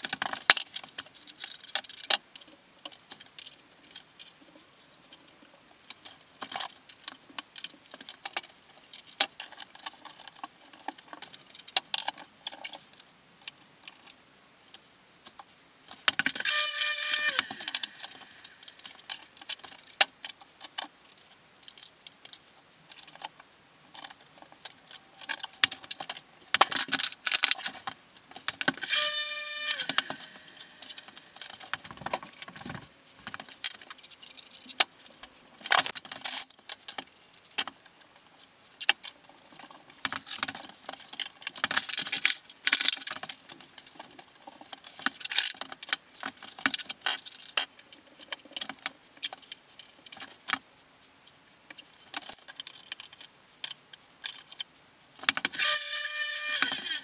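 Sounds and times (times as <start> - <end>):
high squeak: 16.4 - 19.0, 28.8 - 31.4, 55.6 - 57.0.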